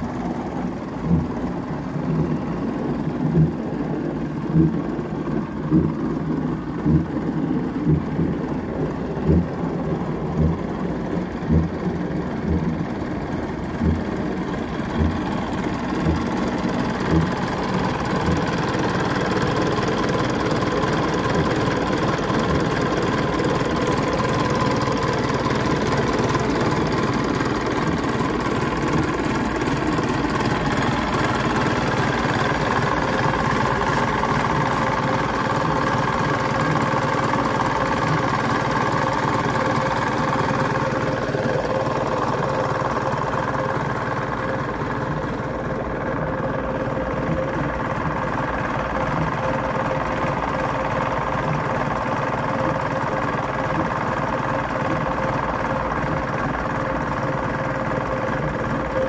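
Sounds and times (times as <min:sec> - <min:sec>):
tractor diesel engine idling: 0:00.0 - 0:59.0
low thumps: 0:00.8 - 0:17.4.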